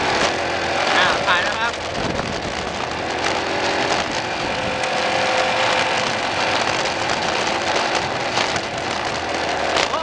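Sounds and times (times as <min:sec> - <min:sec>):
motorcycle engine running: 0:00.0 - 0:10.0
wind noise: 0:00.0 - 0:10.0
knocks and rattles: 0:00.1 - 0:10.0.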